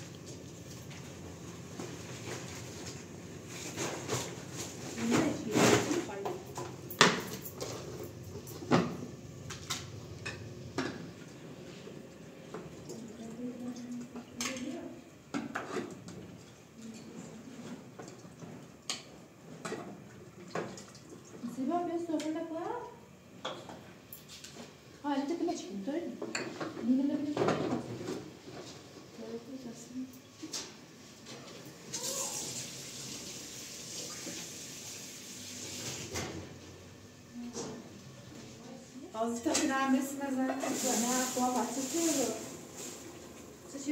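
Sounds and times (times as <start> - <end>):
water running from a tap: 31.9 - 36.0, 40.5 - 43.0.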